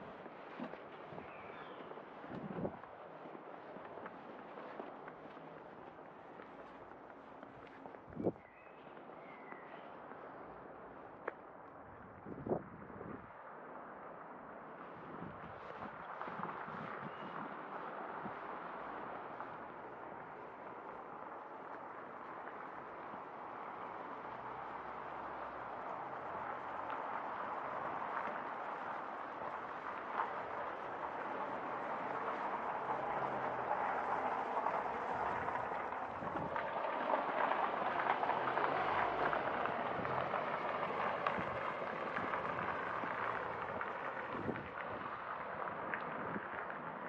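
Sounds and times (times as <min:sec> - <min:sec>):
footsteps on pavement: 0:00.0 - 0:10.4
city traffic hum: 0:00.0 - 0:47.0.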